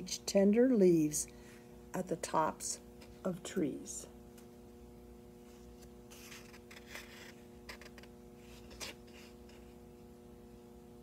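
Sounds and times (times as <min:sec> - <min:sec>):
steady electrical hum: 0:00.0 - 0:11.0
soft paper rustles: 0:05.4 - 0:09.8.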